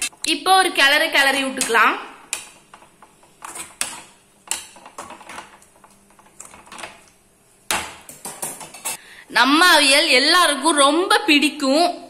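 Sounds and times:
metal spatula scraping a pan: 3.2s - 5.6s.

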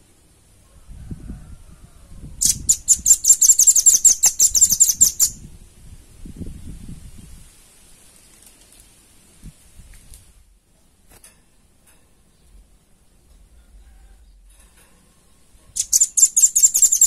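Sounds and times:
bird trilling: 2.4s - 5.4s, 15.8s - 17.0s.

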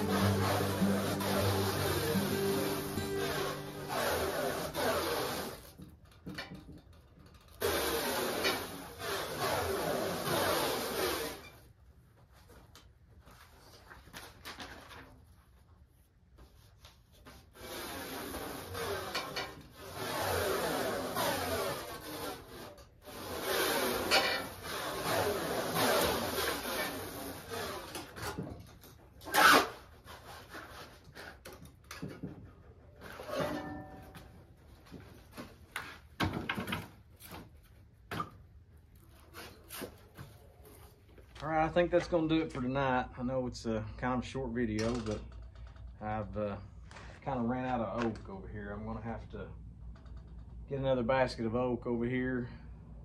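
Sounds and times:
short squeaking scrape: 0.0s - 5.7s, 7.6s - 11.7s, 17.4s - 28.1s, 29.2s - 31.4s, 33.0s - 34.2s
continuous rubbing: 0.0s - 5.8s
wood knocks and clunks: 36.2s - 37.5s.

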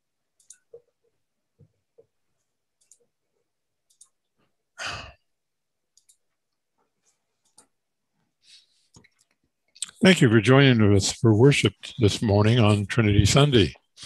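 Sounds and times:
faint small clicks: 0.4s - 0.9s, 2.8s - 3.1s, 3.9s - 4.2s, 6.0s - 6.6s
person exhaling: 4.8s - 5.2s.

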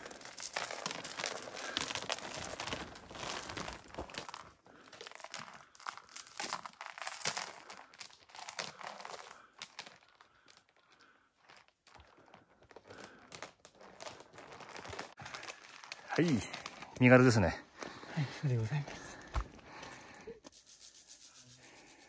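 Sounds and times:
footsteps crunching on rocky path: 18.8s - 19.8s.

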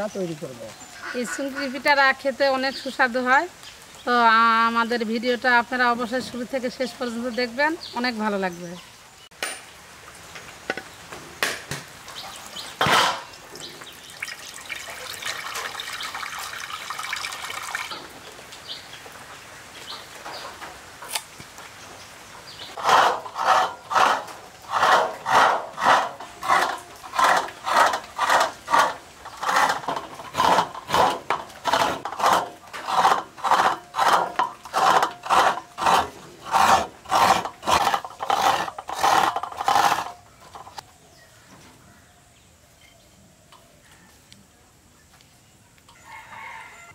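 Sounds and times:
water pouring: 13.3s - 18.2s.

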